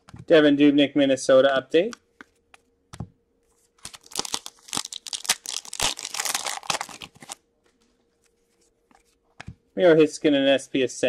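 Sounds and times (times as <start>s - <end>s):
foil wrapper crinkling and ripping: 3.8s - 7.4s.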